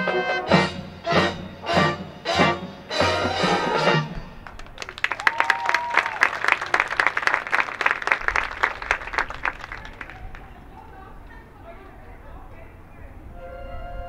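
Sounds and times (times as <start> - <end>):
marching band brass music: 0.0 - 4.5
audience applauding: 4.4 - 11.0
short cheer: 4.6 - 10.5.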